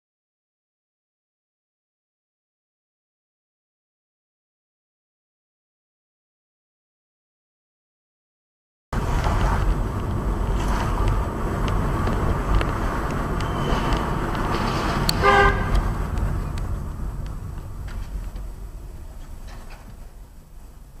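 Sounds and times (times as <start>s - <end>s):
road and engine noise inside car: 9.0s - 21.0s
car horn blast: 15.0s - 16.0s.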